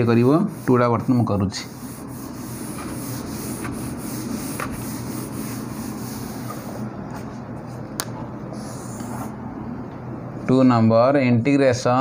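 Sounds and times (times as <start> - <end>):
cloth wiping whiteboard: 0.0 - 7.8, 8.5 - 9.4.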